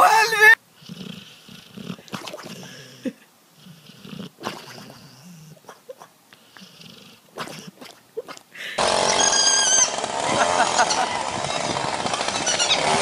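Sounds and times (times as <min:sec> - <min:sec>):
dog snoring: 0:00.8 - 0:07.9.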